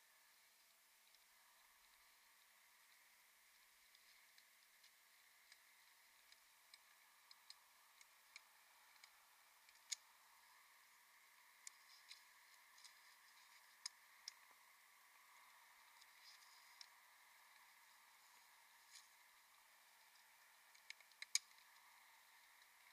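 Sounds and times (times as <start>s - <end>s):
faint hiss: 0.0s - 22.9s
small clicks and ticks: 0.1s - 22.9s.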